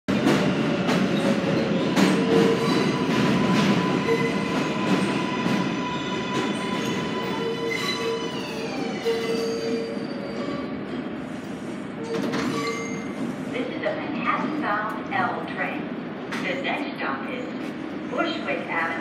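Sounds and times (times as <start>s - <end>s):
train wheels rumbling over rail joints: 0.1s - 9.0s.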